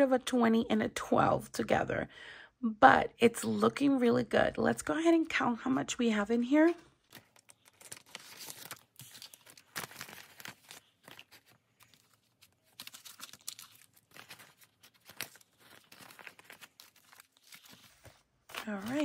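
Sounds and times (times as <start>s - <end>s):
banknotes and plastic rustling: 6.4s - 19.0s.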